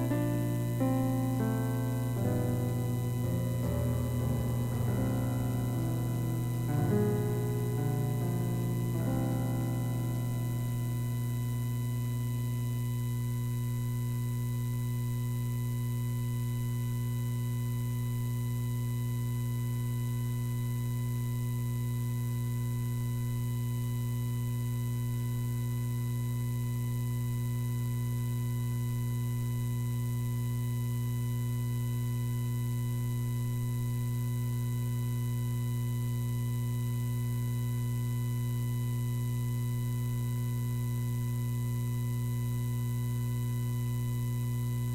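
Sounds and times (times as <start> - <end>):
guitar music: 0.0 - 11.4
electrical mains hum: 0.0 - 44.9.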